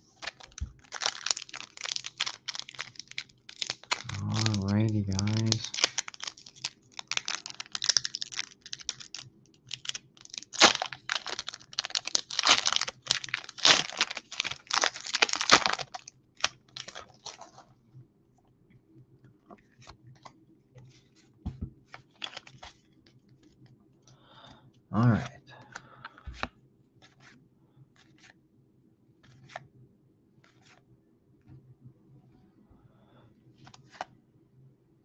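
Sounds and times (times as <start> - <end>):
foil wrapper crinkling and tearing: 0.1 - 17.6, 22.0 - 22.8.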